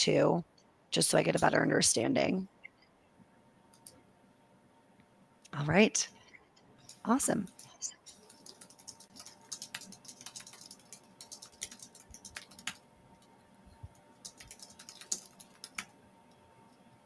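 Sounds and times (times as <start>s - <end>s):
faint steady hum: 0.0s - 17.0s
computer keyboard typing: 6.8s - 16.0s.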